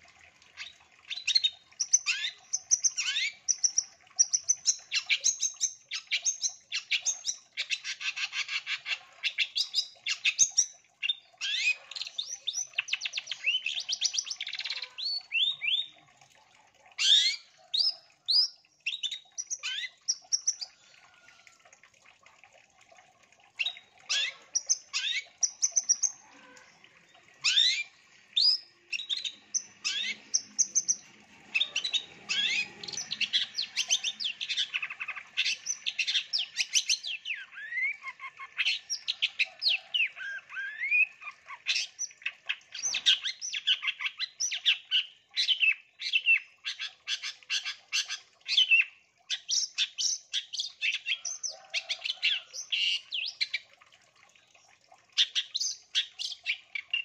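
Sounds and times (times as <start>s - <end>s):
bird singing chirps and trills: 0.6s - 16.0s, 27.1s - 53.6s.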